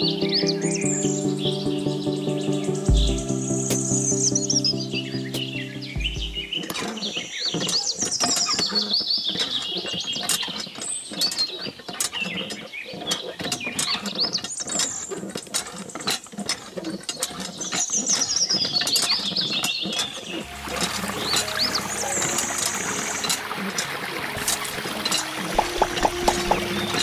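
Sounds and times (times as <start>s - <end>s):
birds chirping: 0.0s - 16.0s, 16.9s - 27.0s
hand pump clicking and creaking: 6.6s - 27.0s.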